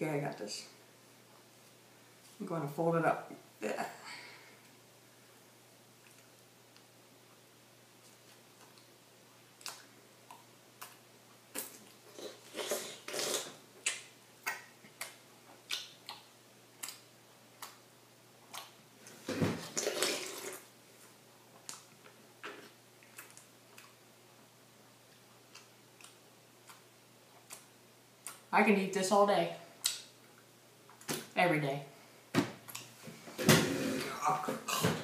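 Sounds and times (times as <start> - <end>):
wet chewing and mouth smacks: 6.0 - 6.8, 9.6 - 12.0, 12.6 - 17.8, 21.6 - 24.0, 25.1 - 28.4.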